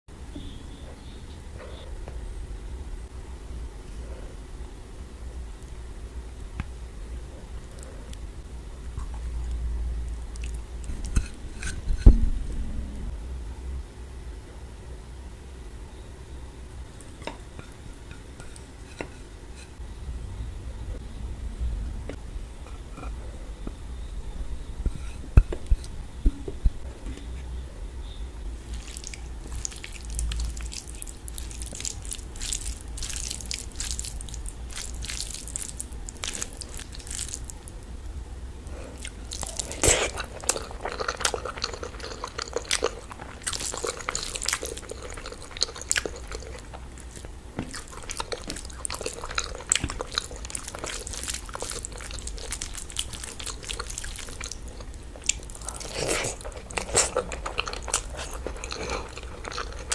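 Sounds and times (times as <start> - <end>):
chewing with wet smacks: 28.6 - 37.8, 38.9 - 59.9
fingers squishing rice: 28.6 - 37.8.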